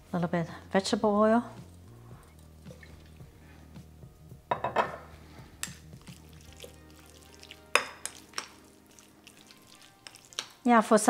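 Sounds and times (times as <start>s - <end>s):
chopsticks stirring wet chicken: 5.4s - 10.7s.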